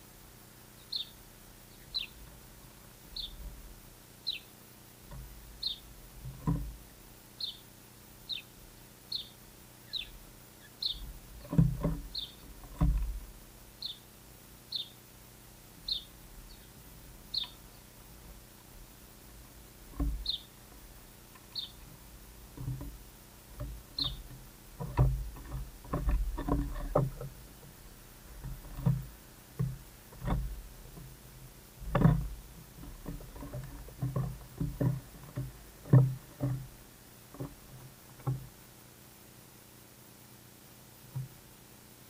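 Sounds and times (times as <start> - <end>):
bird chirping: 0.7 - 2.3, 3.1 - 3.4, 4.2 - 4.6, 5.5 - 5.9, 6.8 - 12.6, 13.8 - 14.1, 14.7 - 15.0, 15.8 - 17.9, 20.2 - 20.7, 21.3 - 21.9, 23.9 - 24.4
squirrel knocking and scraping on wood: 5.0 - 7.0, 10.8 - 13.4, 15.9 - 38.6, 41.0 - 41.4.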